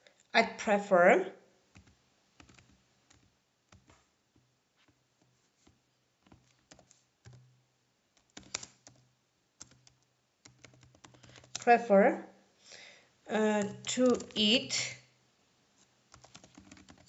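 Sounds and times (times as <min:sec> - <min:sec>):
keystrokes on computer keyboard: 0:01.8 - 0:04.0, 0:05.2 - 0:07.5, 0:08.2 - 0:09.0, 0:09.6 - 0:11.7, 0:13.6 - 0:14.5, 0:16.1 - 0:17.0.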